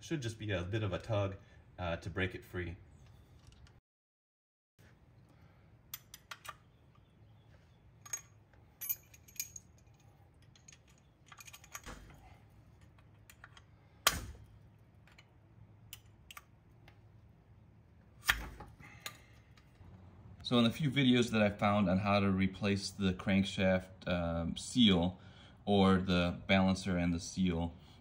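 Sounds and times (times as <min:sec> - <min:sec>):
hand tools clicking and scraping metal: 0:08.0 - 0:14.2.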